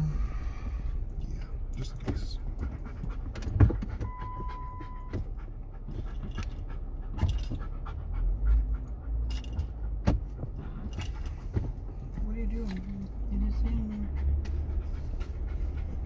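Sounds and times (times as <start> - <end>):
engine and road rumble: 0.0 - 16.0
dog panting: 1.0 - 16.0
knocks and rattles over bumps: 1.5 - 16.0
short steady beep: 4.0 - 5.3.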